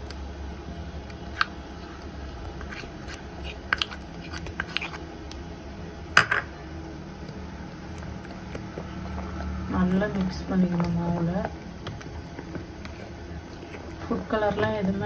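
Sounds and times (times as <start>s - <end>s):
low steady hum: 0.0s - 15.0s
spoon scraping and tapping bowls: 2.6s - 5.0s.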